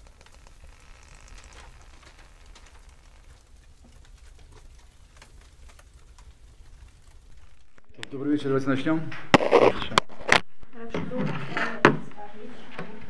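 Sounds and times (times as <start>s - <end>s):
light clicks and crackles: 0.0s - 8.2s
faint low rumble: 0.0s - 9.1s.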